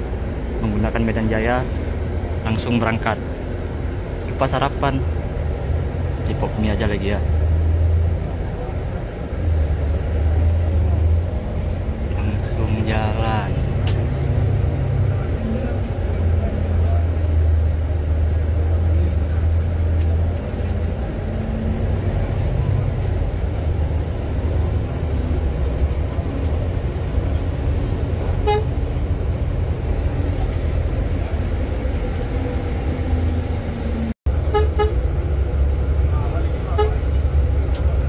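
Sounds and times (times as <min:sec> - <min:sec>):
coach engine and road rumble: 0:00.0 - 0:38.0
vehicle horn toots: 0:28.4 - 0:28.8, 0:34.5 - 0:35.0, 0:36.7 - 0:37.0.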